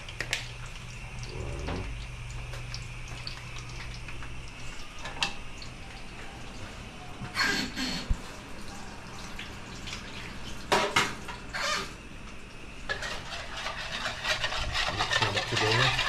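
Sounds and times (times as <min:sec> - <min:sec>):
dishes and utensils clattering: 0:10.7 - 0:11.3, 0:12.9 - 0:16.0.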